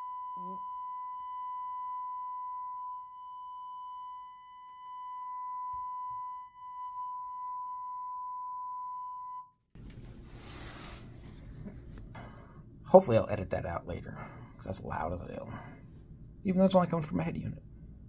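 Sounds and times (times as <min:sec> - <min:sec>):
sine test tone from speaker: 0:00.0 - 0:09.7
rustling noise: 0:09.8 - 0:12.1.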